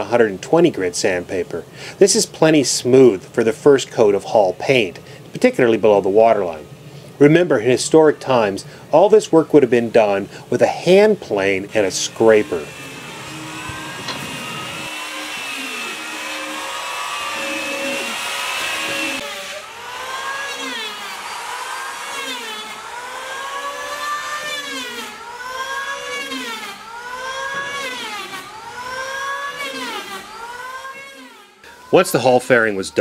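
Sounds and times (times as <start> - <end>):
power planes and sanders whining: 7.2 - 33.0.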